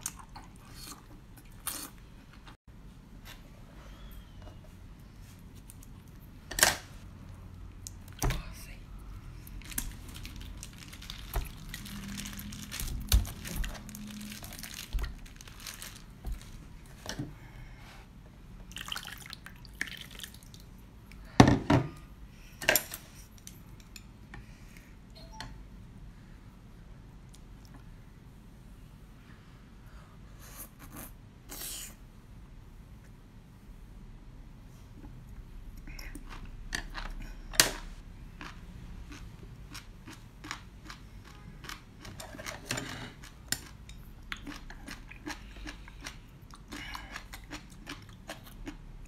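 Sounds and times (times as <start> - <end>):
plastic bag being cut and squeezed: 9.6 - 16.6.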